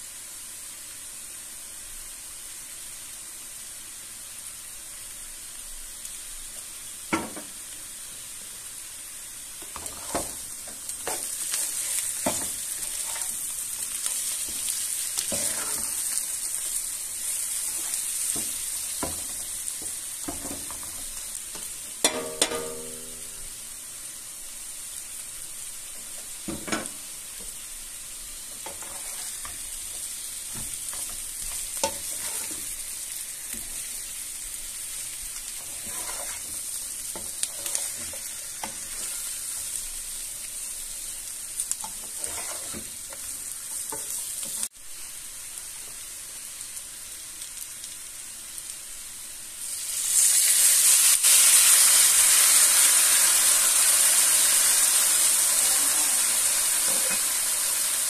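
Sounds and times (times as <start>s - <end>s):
broth hissing in hot pan: 0.0s - 58.0s
potatoes sizzling in a frying pan: 0.0s - 58.0s
spatula scraping and tapping pan: 9.6s - 13.4s, 14.1s - 16.2s, 17.7s - 23.4s, 28.5s - 32.8s, 35.5s - 39.9s, 41.6s - 44.7s.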